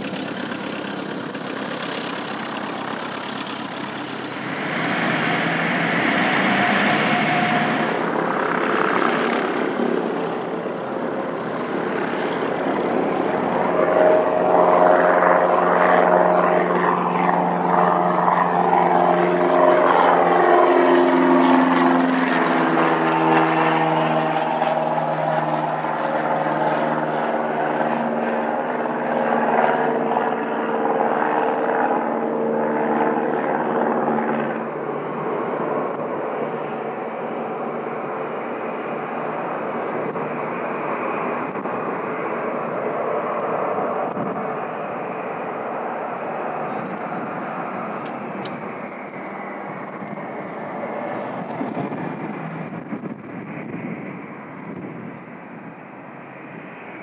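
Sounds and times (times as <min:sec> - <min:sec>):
another aircraft engine: 0:00.0 - 0:57.0
propeller aircraft engine droning: 0:00.0 - 0:57.0.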